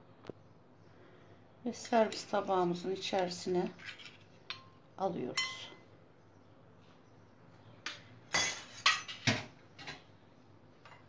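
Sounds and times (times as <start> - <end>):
metal ladle clinking on ceramic plate: 4.5 - 4.8.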